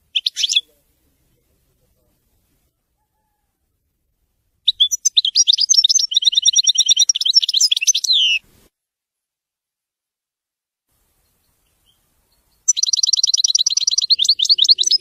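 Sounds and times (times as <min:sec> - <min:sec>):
goldfinch twittering song: 0:00.1 - 0:00.7, 0:04.6 - 0:08.4, 0:11.2 - 0:15.0.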